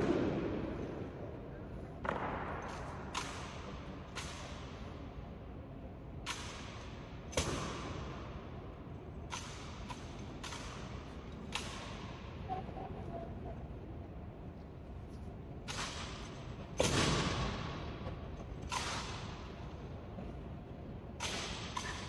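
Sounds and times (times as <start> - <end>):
rifles clacking and slapping: 9.2 - 12.2.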